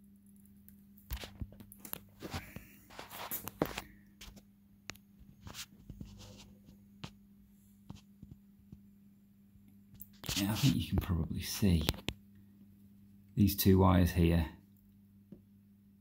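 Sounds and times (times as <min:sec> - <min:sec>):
faint low hum: 0:00.0 - 0:16.0
handling scuffs and rustles: 0:02.1 - 0:04.4.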